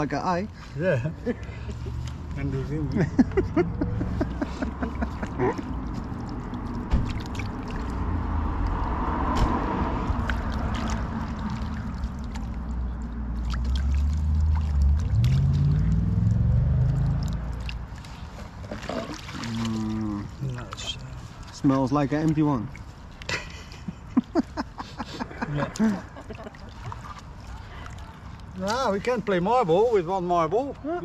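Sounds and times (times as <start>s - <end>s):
water sloshing and gurgling: 0.0s - 30.9s
low engine rumble: 0.8s - 23.0s.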